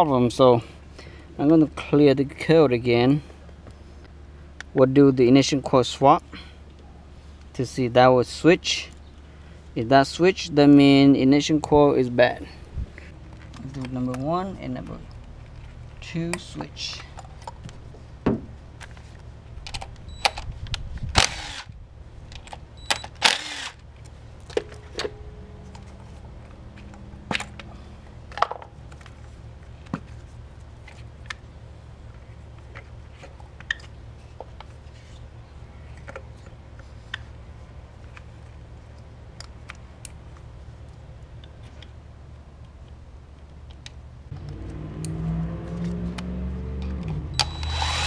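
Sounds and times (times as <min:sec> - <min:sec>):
low hum: 0:12.1 - 0:48.0
cordless drill bursts: 0:21.2 - 0:21.7, 0:23.0 - 0:23.8, 0:47.4 - 0:48.0
tools and parts clattering: 0:24.4 - 0:29.3.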